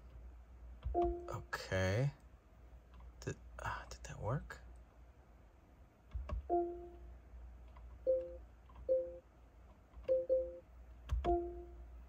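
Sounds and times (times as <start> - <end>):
car infotainment chimes: 1.0 - 1.6, 10.1 - 10.6.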